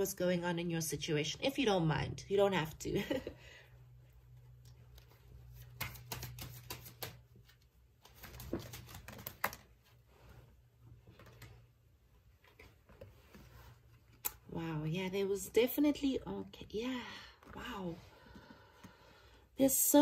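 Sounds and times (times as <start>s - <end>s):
cards being shuffled: 4.6s - 9.9s.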